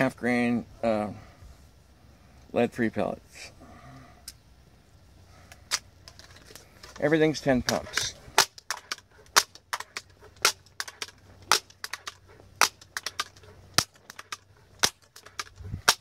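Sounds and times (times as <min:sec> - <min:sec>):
air rifle pump lever clacking: 0:07.6 - 0:16.0.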